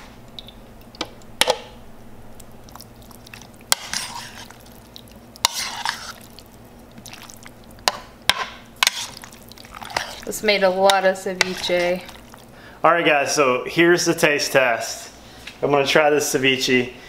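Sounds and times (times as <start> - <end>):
wet squishy stirring: 2.2 - 12.8.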